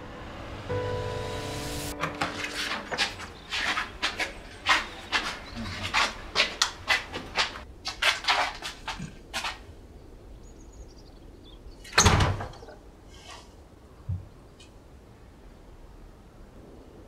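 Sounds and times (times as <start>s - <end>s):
door shutting thud: 12.0s - 12.6s.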